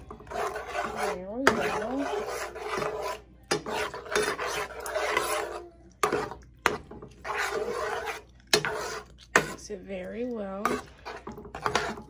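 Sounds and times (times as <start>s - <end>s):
spoon scraping frying pan: 0.0s - 12.0s.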